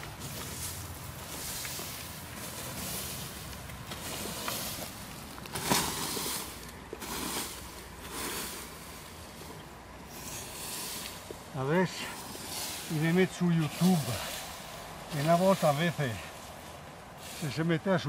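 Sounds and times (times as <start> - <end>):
rake swishing through hay: 0.0 - 18.0.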